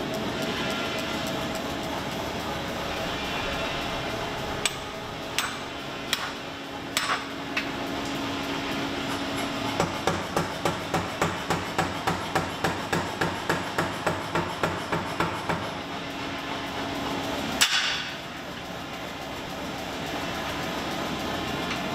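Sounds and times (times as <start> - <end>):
machine hum: 0.0 - 13.7, 15.6 - 21.9
power hammer pounding steel: 4.3 - 7.3, 9.8 - 15.7.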